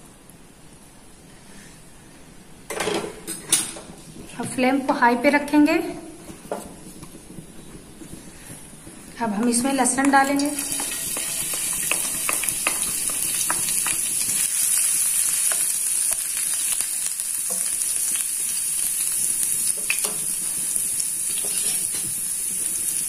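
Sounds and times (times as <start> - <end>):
garlic sizzling in hot oil: 9.2 - 23.0.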